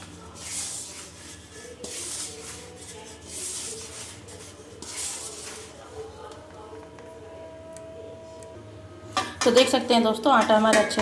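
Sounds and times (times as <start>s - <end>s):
hands kneading crumbly dough: 0.0s - 6.4s.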